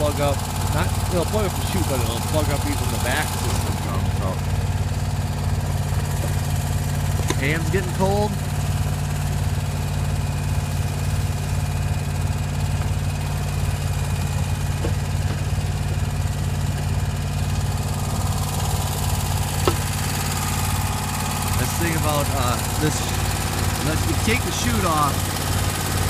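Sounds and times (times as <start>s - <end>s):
mower engine running: 0.0s - 26.0s.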